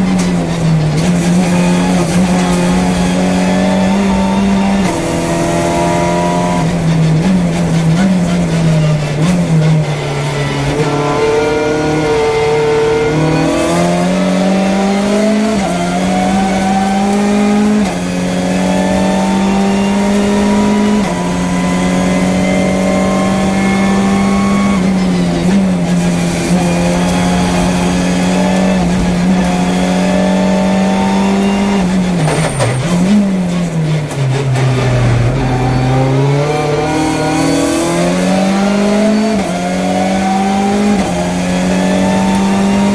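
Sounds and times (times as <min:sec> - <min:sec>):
racing car engine revving: 0:00.0 - 0:42.9.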